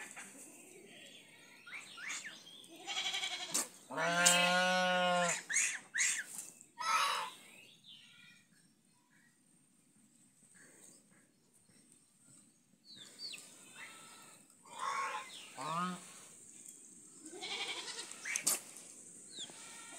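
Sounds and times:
geese calling: 13.7s - 16.3s.

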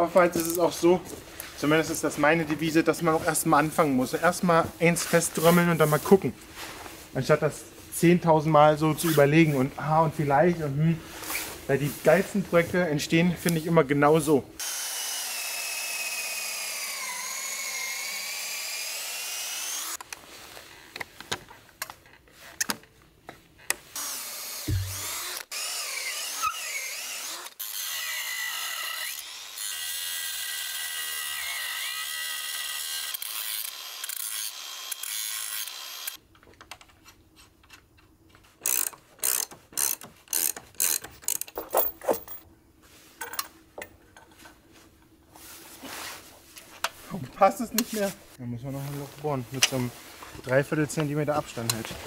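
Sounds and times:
power drill boring into wood: 14.6s - 20.0s, 24.0s - 36.2s
knocks and handling noises: 24.7s - 25.0s, 40.0s - 42.5s
ratchet cranking: 38.6s - 41.9s.

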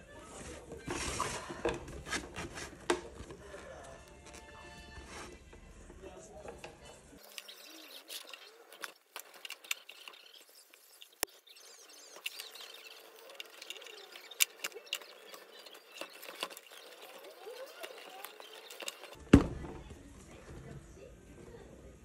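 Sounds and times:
leather straps scraping: 7.2s - 19.2s.

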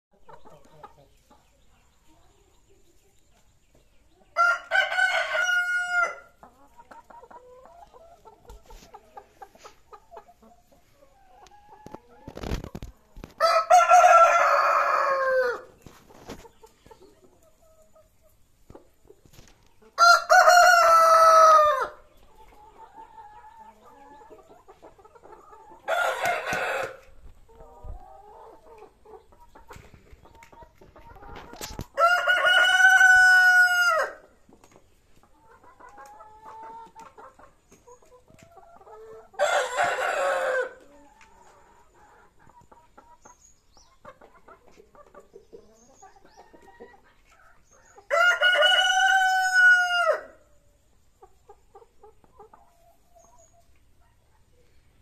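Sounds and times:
hens clucking softly: 0.1s - 13.4s, 14.0s - 55.0s
roosters crowing: 4.4s - 6.4s, 13.4s - 15.8s, 20.0s - 22.0s, 25.7s - 27.2s, 31.9s - 34.3s, 39.4s - 40.8s, 48.0s - 50.5s.

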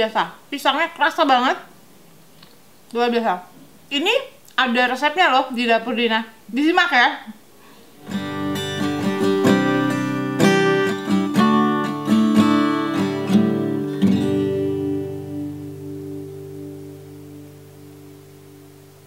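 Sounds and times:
acoustic guitar plucking: 8.0s - 19.0s.

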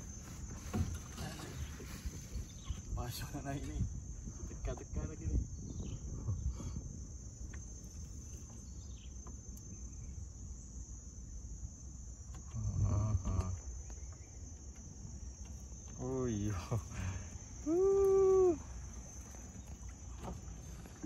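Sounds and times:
high-pitched insect drone: 0.0s - 21.0s
person's short voiced sounds: 17.6s - 18.6s.

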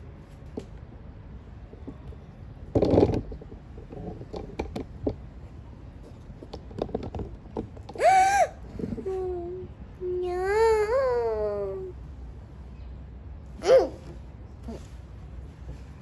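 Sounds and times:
small child crying out: 8.0s - 12.0s, 13.6s - 14.1s.

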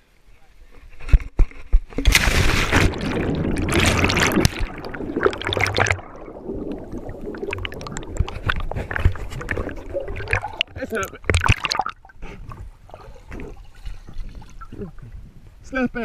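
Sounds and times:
underwater rush of bubbles: 2.0s - 12.2s
muffled bubbling and gurgling: 2.7s - 15.4s.

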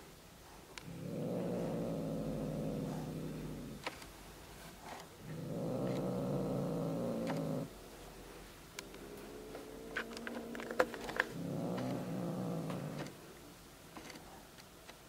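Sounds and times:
cat growling: 0.8s - 3.9s, 5.2s - 7.8s, 8.8s - 13.2s.

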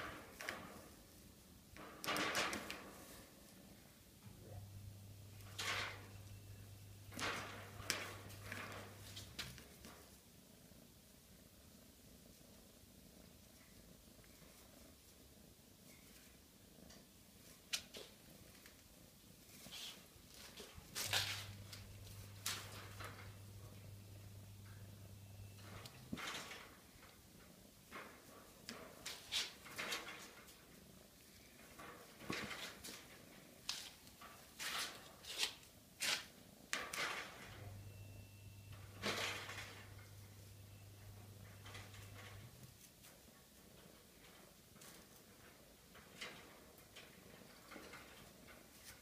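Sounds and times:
low steady hum: 4.1s - 10.0s, 37.4s - 42.9s
kitten rattling a wire cage: 5.4s - 6.3s, 7.0s - 10.0s, 20.4s - 24.8s, 25.6s - 27.1s, 27.8s - 30.8s, 31.6s - 33.3s, 41.1s - 42.6s, 43.8s - 49.0s.

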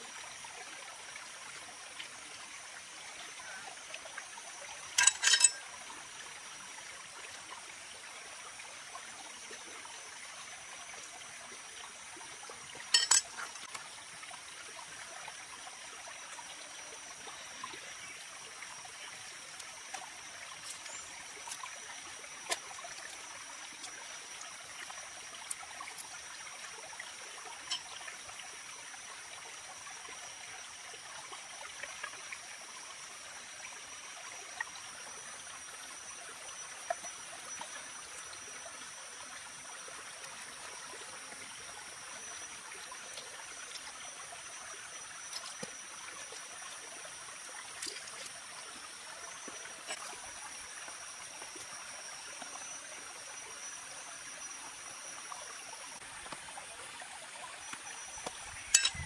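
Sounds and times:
thin high steady tones: 5.0s - 5.7s, 12.9s - 13.7s, 58.3s - 59.0s.

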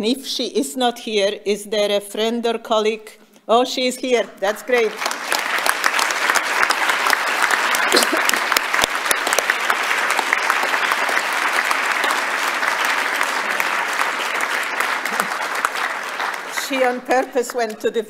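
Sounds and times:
audience applause: 4.7s - 17.9s.

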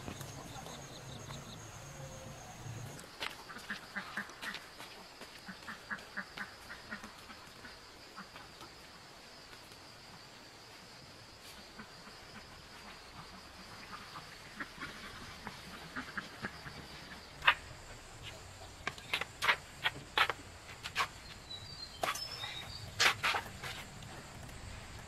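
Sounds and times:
bird chirping: 0.0s - 3.0s, 21.0s - 23.6s
high insect drone: 0.0s - 3.4s
footsteps in sandals on concrete: 2.9s - 6.6s, 17.4s - 24.6s.

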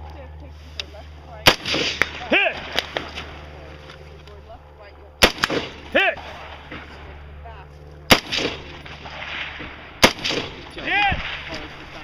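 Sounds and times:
rifle shot with echo: 1.4s - 3.4s, 5.2s - 6.9s, 8.1s - 12.0s.

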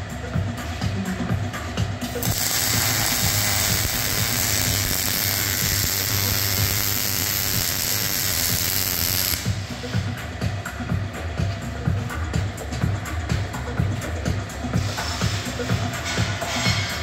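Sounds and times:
background music: 0.0s - 17.0s
power tool hissing: 2.2s - 9.4s.

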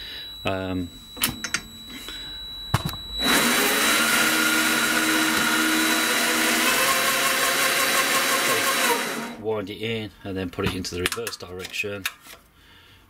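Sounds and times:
lathe motor whining: 3.2s - 9.4s.

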